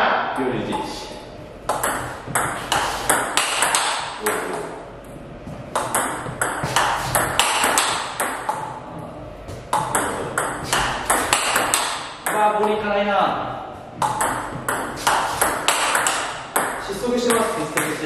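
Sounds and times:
table tennis ball clicking: 1.7 - 4.6, 5.8 - 8.7, 9.7 - 12.4, 14.0 - 18.0.

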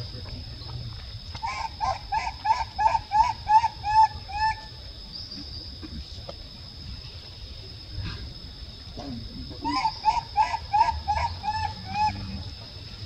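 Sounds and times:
short animal calls: 9.6 - 12.6.

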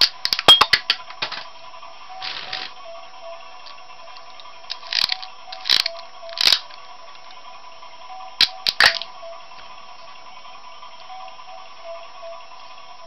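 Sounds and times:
plastic toy launcher clicks: 4.7 - 6.8, 8.4 - 9.1.

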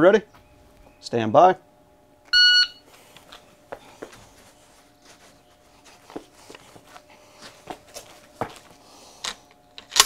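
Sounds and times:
faint knocks and shuffles: 2.8 - 9.6.

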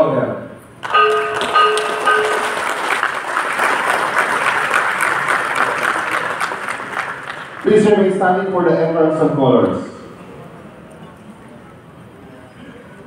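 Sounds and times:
struck bell ringing: 0.8 - 3.1
audience applauding: 0.8 - 8.1.

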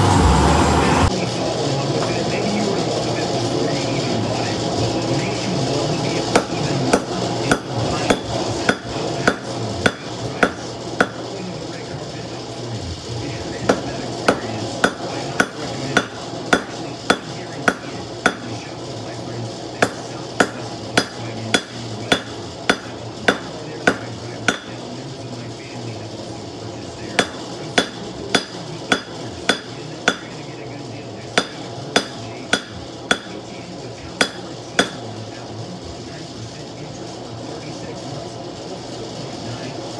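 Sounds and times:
hammer clanging on anvil: 6.3 - 11.2, 13.7 - 18.5, 19.8 - 24.8, 27.2 - 30.3, 31.4 - 33.4, 34.2 - 35.0.

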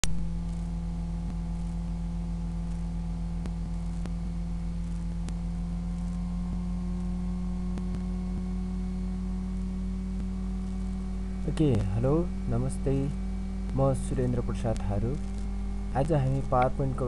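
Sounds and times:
low electrical hum: 0.0 - 17.0.

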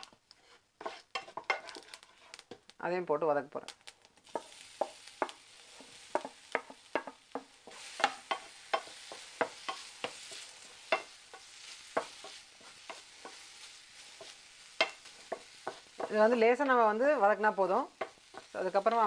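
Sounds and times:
wooden spatula scraping frying pan: 0.0 - 2.6, 4.3 - 19.0
oil sizzling: 0.0 - 19.0.

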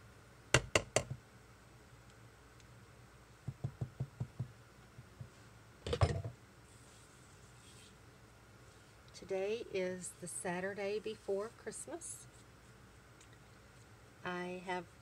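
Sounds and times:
sharp knocks on metal: 0.6 - 1.2.

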